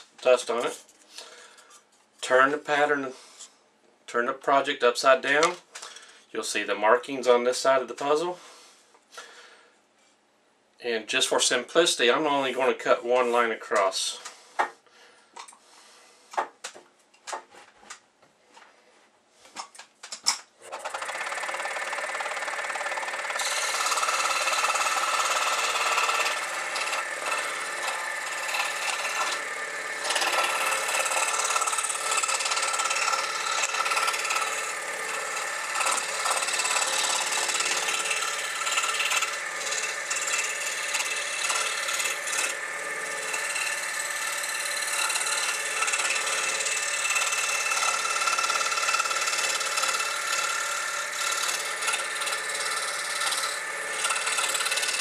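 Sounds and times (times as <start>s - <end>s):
saw blade cutting wood: 20.6s - 55.0s
scroll saw machine hum: 20.6s - 55.0s.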